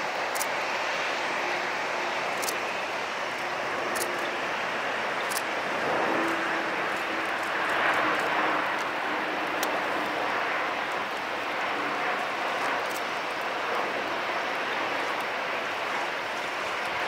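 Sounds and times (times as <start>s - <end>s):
jet engine rush: 0.0s - 17.0s.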